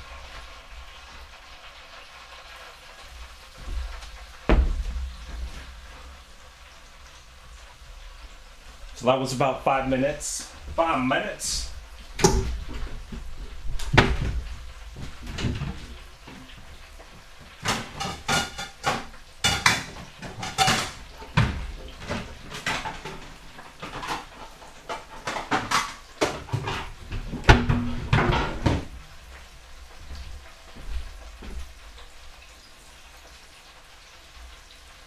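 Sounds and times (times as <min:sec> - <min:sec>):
cupboard doors knocking: 0:04.5 - 0:04.9
dishes clinking: 0:17.6 - 0:28.9.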